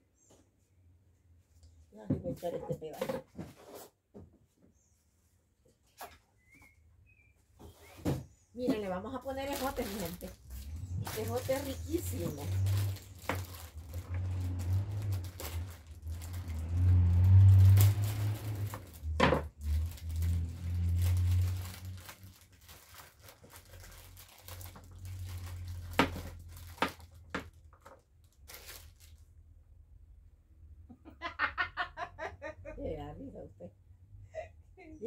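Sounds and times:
plastic bag crinkling: 9.2 - 29.4
woman laughing: 30.9 - 35.0.

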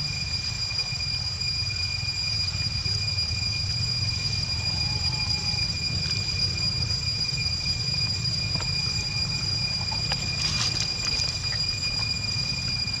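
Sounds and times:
high-pitched whine: 0.0 - 13.0
rustles in dry leaves: 8.6 - 12.8.

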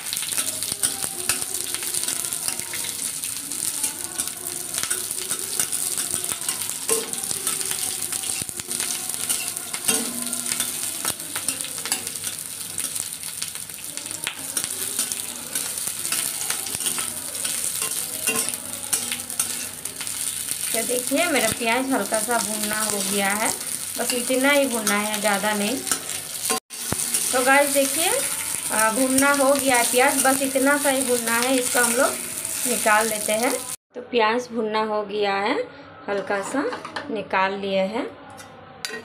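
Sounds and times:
onions sizzling in hot oil: 0.0 - 33.8
metal spatula scraping pan: 14.5 - 32.9.

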